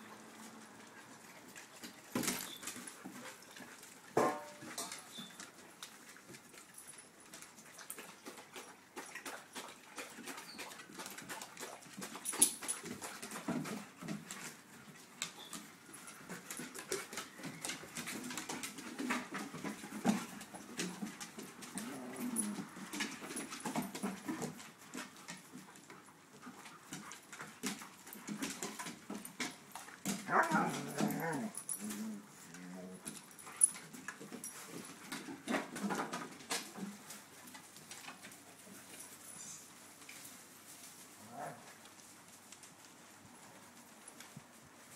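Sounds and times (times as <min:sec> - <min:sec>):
dogs scuffling in play: 0:00.0 - 0:44.9
dogs growling: 0:21.7 - 0:22.9, 0:30.2 - 0:33.2
dogs whining: 0:30.3 - 0:32.3.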